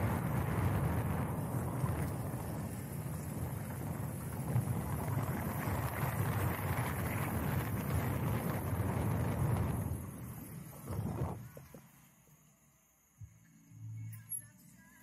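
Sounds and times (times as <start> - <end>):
tyre and engine noise: 0.0 - 11.8
wind rumbling on microphone: 0.0 - 11.8.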